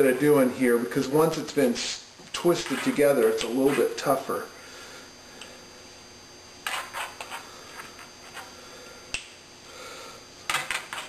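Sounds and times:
steel wire rustling and scraping: 2.5 - 4.0.

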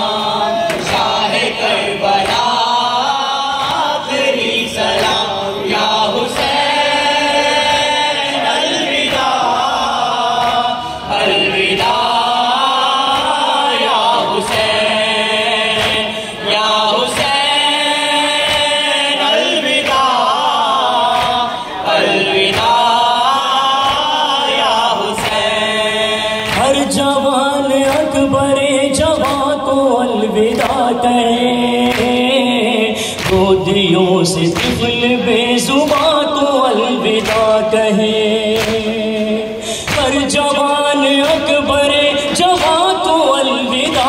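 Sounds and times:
men chanting in chorus: 0.0 - 44.0
chest-beating slaps: 21.1 - 21.5, 38.6 - 38.9.

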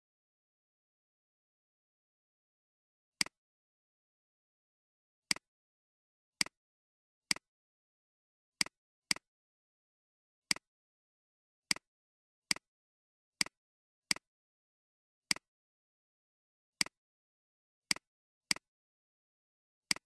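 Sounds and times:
computer mouse clicking: 17.9 - 18.7.

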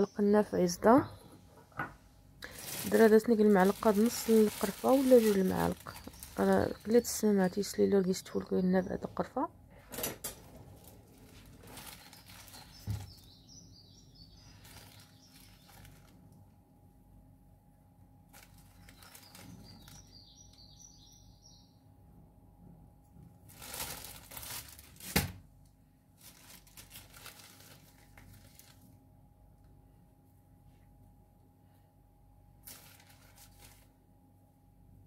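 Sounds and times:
plastic bag rustling: 2.4 - 7.8, 10.4 - 13.4, 14.4 - 16.3, 18.3 - 20.2, 23.4 - 25.4, 26.1 - 29.0, 32.6 - 34.1.

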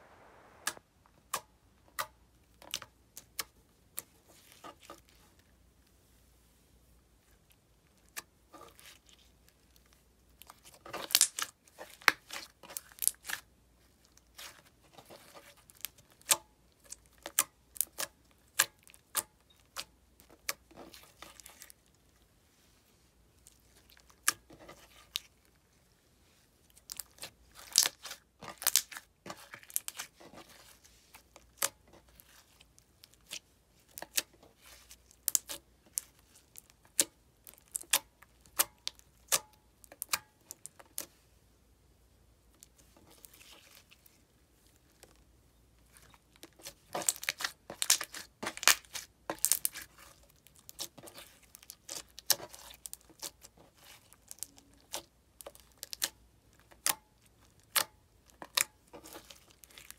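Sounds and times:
slime crackling and popping: 10.4 - 13.5, 26.7 - 30.6, 31.3 - 41.1, 46.3 - 59.9.

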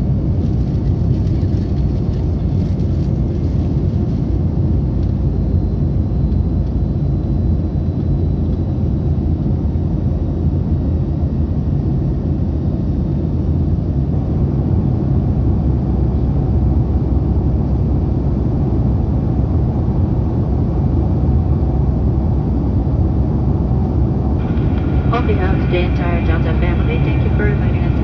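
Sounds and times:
jet engines rumbling: 0.0 - 28.0
rushing air: 24.3 - 25.8.

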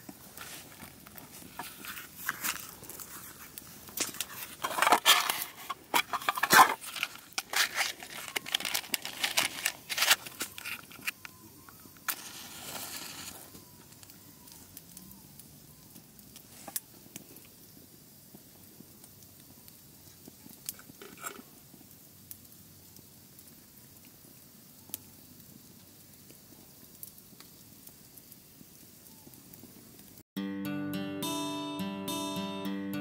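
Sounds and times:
crinkling and rustling: 0.0 - 14.8, 20.1 - 21.6
short hiss: 12.1 - 13.6.

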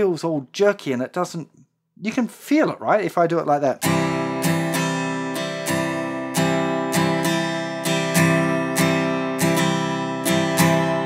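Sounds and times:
acoustic guitar strumming: 3.8 - 11.0.

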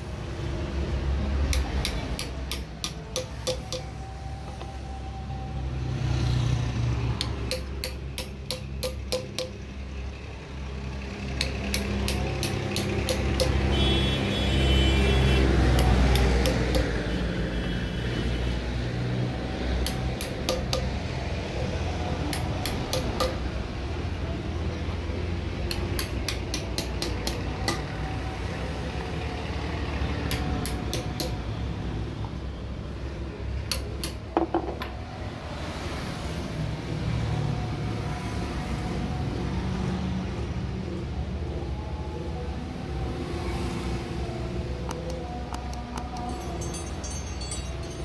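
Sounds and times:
low rumble of vehicle engines: 0.0 - 48.0
metal taps and clinks: 1.5 - 4.0, 7.2 - 9.6, 11.4 - 13.6, 15.8 - 17.0, 19.8 - 20.9, 22.3 - 23.4, 25.7 - 27.8, 45.0 - 48.0.

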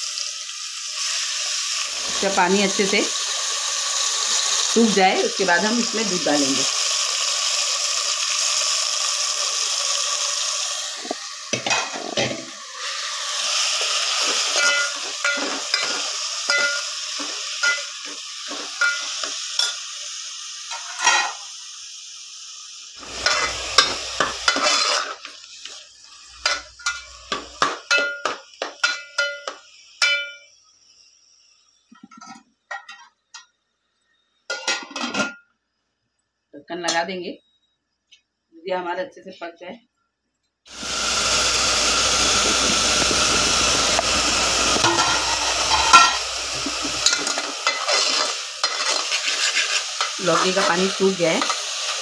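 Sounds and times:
vegetables sizzling in ghee: 0.0 - 37.9, 40.6 - 52.0
spoon scraping and knocking pot: 11.0 - 12.5, 14.2 - 19.8, 23.1 - 25.2, 42.2 - 50.7.

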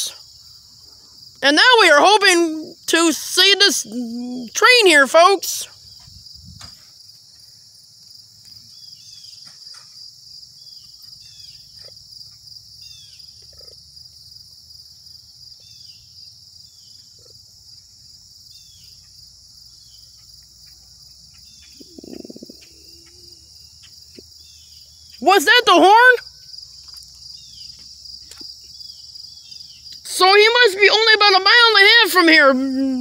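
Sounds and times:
insects chirring: 0.0 - 33.0
bird chirps: 21.3 - 25.2.

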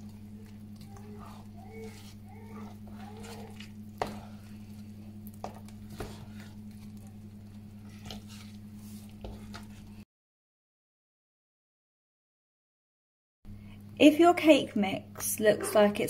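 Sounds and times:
batter squelching: 0.0 - 10.0
steady low hum: 0.0 - 10.0.

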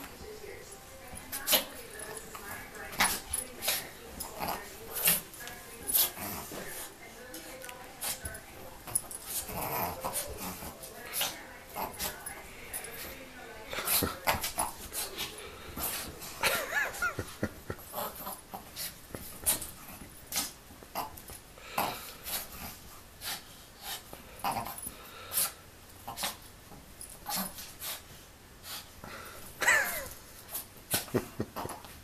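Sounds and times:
animals scuffling: 0.0 - 21.4
dog play noises: 0.0 - 32.0.

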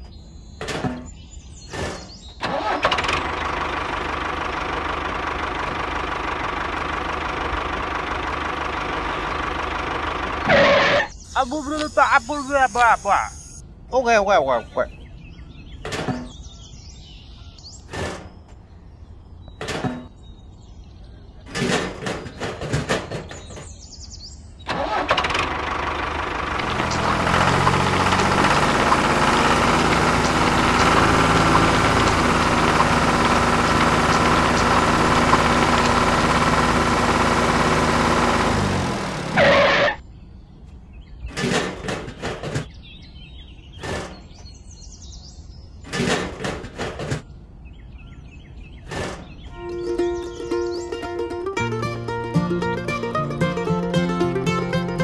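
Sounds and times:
diesel tractor engine running: 0.0 - 13.6, 24.6 - 40.0, 48.8 - 55.0.

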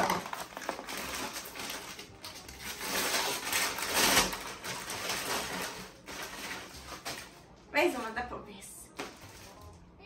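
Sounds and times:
tissue paper rustling: 0.0 - 8.2, 8.9 - 9.7.

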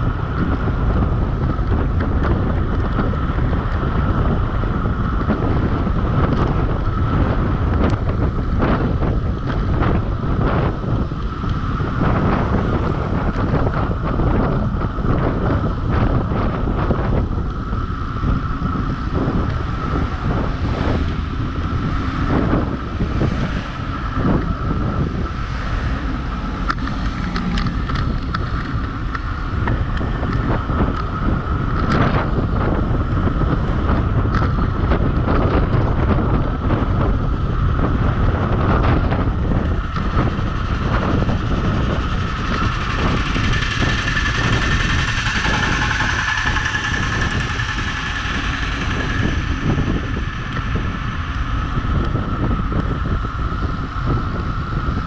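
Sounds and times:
thin whine: 0.0 - 55.0
wind buffeting microphone: 0.0 - 55.0.

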